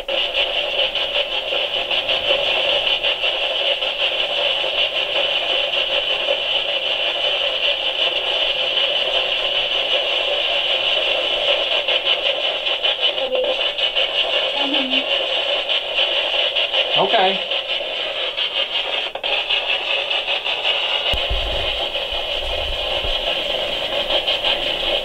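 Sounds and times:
radio static sweeping: 0:21.1 - 0:25.0.

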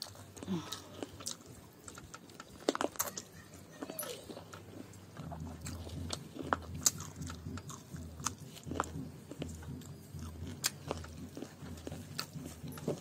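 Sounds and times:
close-up chewing: 0:00.0 - 0:13.0.

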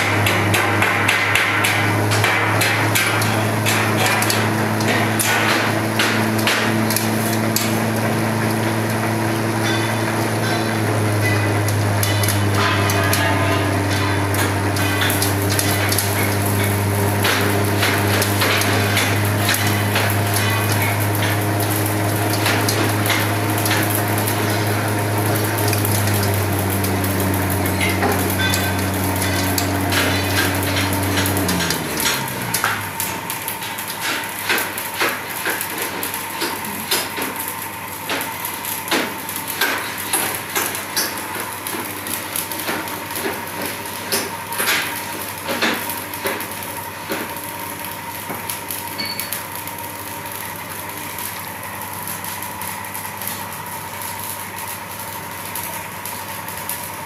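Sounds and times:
shredder motor humming: 0:00.0 - 0:33.7.

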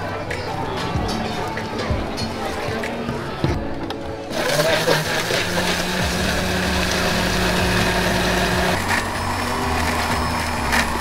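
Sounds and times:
blender motor running: 0:04.3 - 0:11.0.

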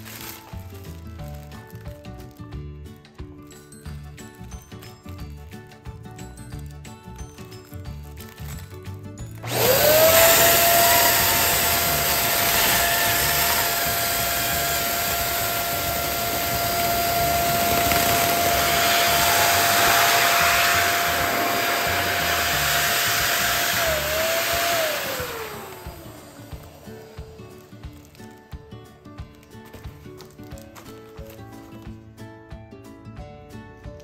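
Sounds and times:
electric balloon pump whine: 0:09.4 - 0:28.0.

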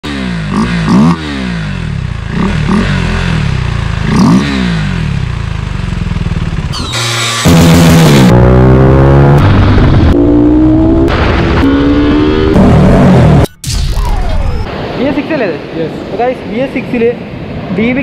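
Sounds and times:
motorcycle engine idling and revving: 0:00.0 - 0:13.5.

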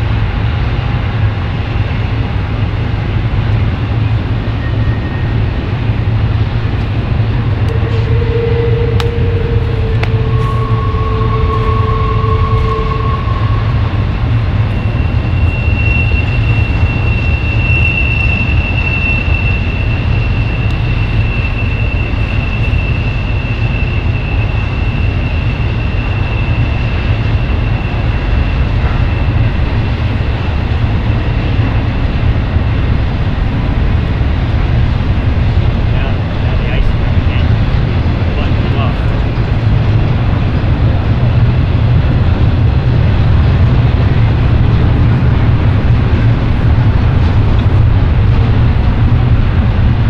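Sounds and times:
freight train rumbling past: 0:00.0 - 0:50.0
high-pitched whine: 0:01.6 - 0:33.9.

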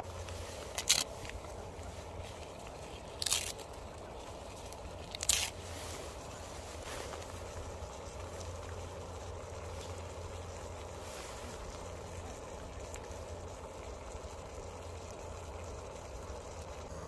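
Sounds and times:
seaweed sheet tearing: 0:00.6 - 0:01.4, 0:03.0 - 0:03.8, 0:04.6 - 0:05.6.

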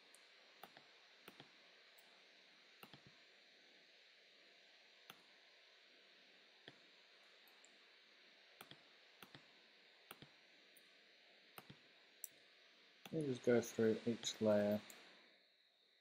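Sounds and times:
low steady hiss: 0:00.0 - 0:16.0
computer mouse clicks: 0:00.6 - 0:02.1, 0:02.8 - 0:03.2, 0:05.1 - 0:05.3, 0:08.6 - 0:09.5, 0:10.1 - 0:10.9, 0:11.6 - 0:12.4.

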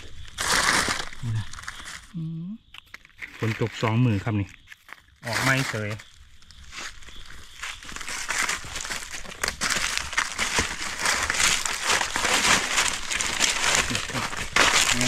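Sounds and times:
footsteps crunching dry leaves: 0:00.0 - 0:02.2, 0:03.2 - 0:15.0.

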